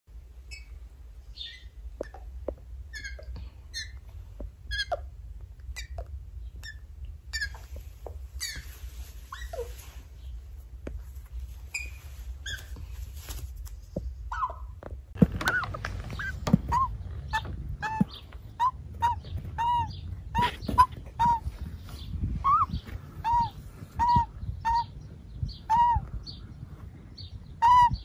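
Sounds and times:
low steady hum: 0.1 - 28.0
young magpie squeaky calls: 2.9 - 4.0, 4.7 - 5.1, 5.8 - 6.0, 6.6 - 7.6, 8.4 - 8.7, 9.3 - 9.7, 16.2 - 21.5, 22.4 - 25.0, 25.6 - 26.1, 27.6 - 28.0.

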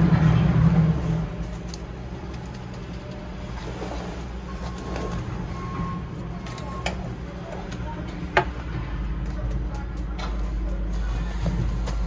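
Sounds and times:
low rumble: 0.0 - 6.4.

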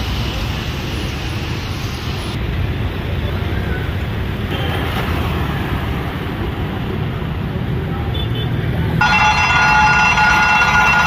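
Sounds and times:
train rumbling: 8.9 - 11.0.

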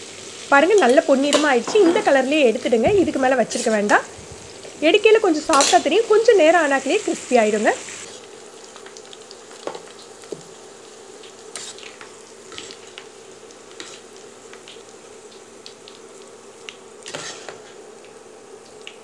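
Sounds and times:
onions sizzling in oil: 0.0 - 19.0
metal spoon scraping a pot: 17.1 - 17.8.

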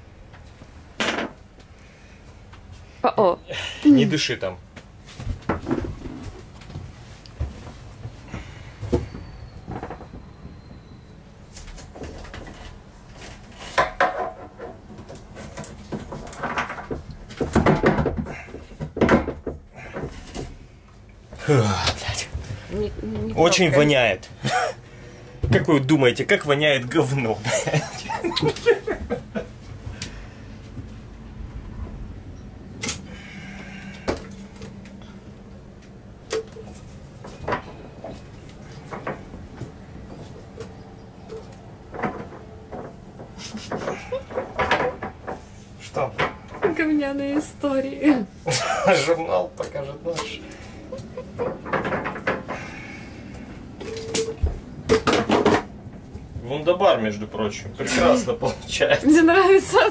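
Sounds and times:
knocks and clatters on plastic tank: 15.6 - 20.3.

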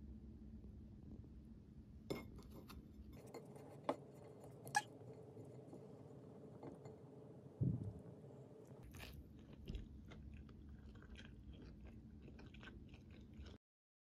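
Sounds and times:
bread crunch: 8.8 - 13.6
crunchy chewing: 8.8 - 13.6.

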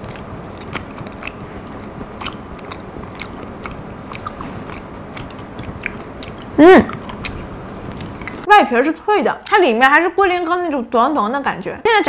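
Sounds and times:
person chewing crunchy food: 0.0 - 8.5.

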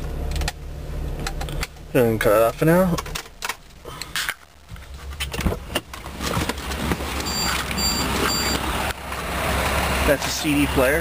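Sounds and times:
car warning chime beeps: 7.2 - 8.7.

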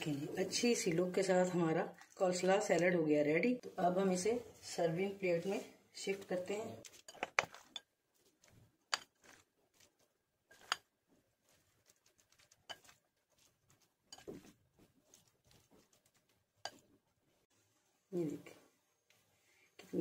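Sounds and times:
salad rustling: 6.8 - 18.0.

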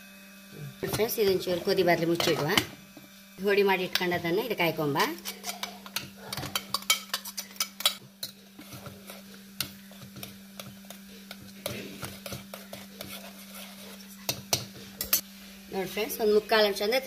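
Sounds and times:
steady low hum: 0.0 - 17.0
steel spoon clinking on a pot: 5.2 - 8.5.

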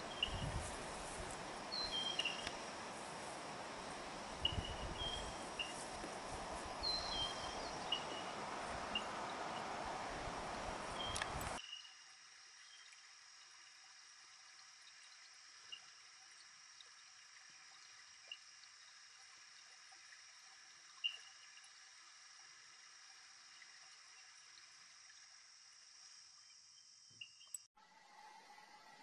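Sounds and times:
faint steady hiss: 0.0 - 29.0.

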